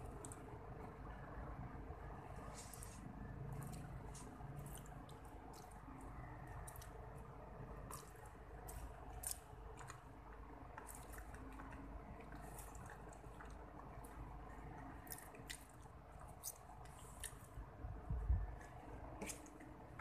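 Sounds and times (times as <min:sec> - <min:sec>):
person chewing wetly: 0:03.5 - 0:17.8, 0:18.4 - 0:20.0.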